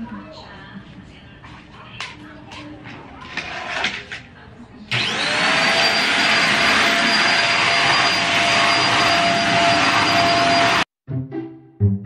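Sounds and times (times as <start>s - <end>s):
vacuum cleaner motor whine: 4.9s - 10.9s.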